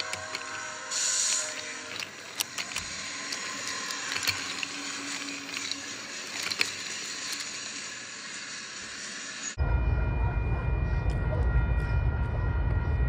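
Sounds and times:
sharp clicks: 0.0s - 7.8s
toy train wheels rattling on track: 0.0s - 9.6s.

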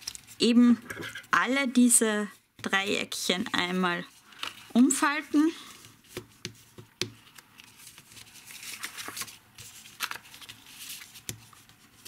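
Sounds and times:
paper rustling and scraping: 5.6s - 12.0s.

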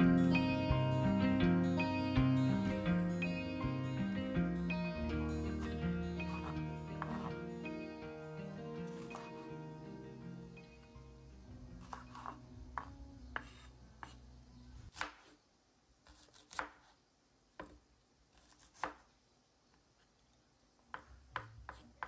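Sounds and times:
soft background music: 0.0s - 15.0s
knife chopping on wooden board: 6.3s - 7.3s, 8.9s - 9.4s, 11.8s - 14.2s, 14.9s - 15.4s, 16.1s - 16.9s, 18.4s - 19.1s, 20.9s - 22.0s.

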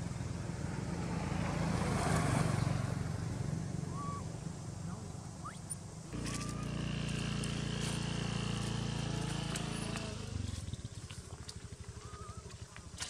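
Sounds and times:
vehicle engine running: 5.9s - 13.0s.

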